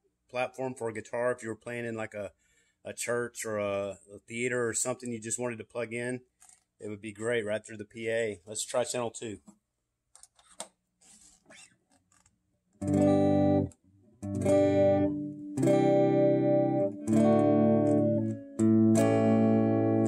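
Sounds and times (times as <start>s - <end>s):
electric guitar chords ringing: 12.8s - 20.0s.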